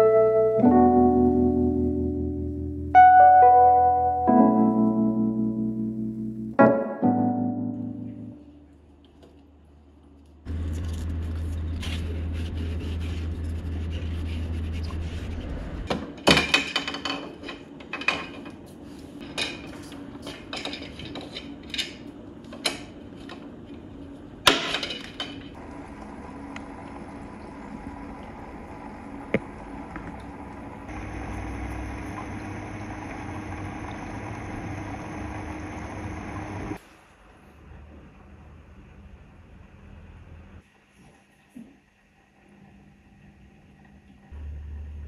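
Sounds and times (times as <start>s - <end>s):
piano music: 0.0s - 8.6s
water bubbling and gurgling: 25.6s - 36.7s.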